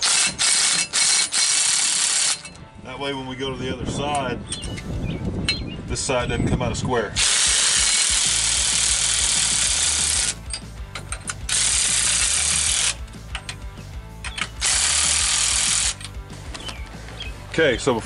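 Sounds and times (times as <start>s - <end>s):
cordless power ratchet running: 0.0s - 2.6s, 7.2s - 13.7s, 14.4s - 16.2s.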